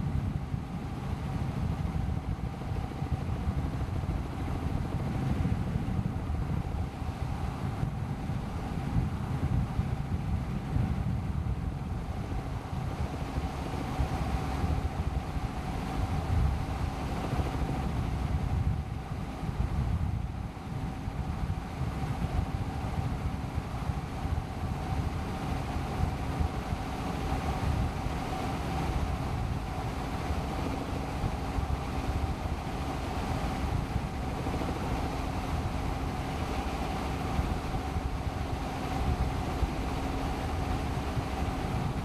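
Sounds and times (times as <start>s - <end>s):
wind rushing over microphone: 0.0s - 42.0s
helicopter engine and rotor: 12.0s - 18.2s, 24.0s - 42.0s.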